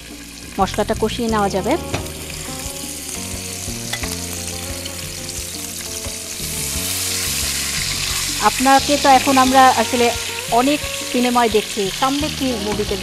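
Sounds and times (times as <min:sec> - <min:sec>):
spices sizzling in hot oil: 0:00.0 - 0:13.0.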